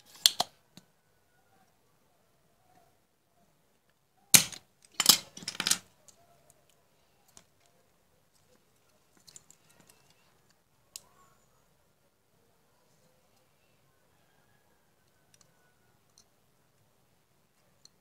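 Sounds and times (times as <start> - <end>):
faint clicks of tools: 15.0 - 16.4, 17.6 - 18.0.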